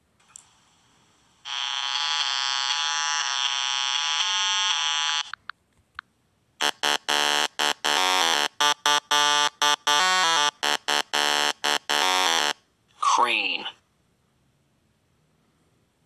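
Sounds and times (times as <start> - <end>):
electronic buzzing tone: 1.4 - 5.4, 6.6 - 12.6
short choppy buzzing blips: 6.6 - 12.6.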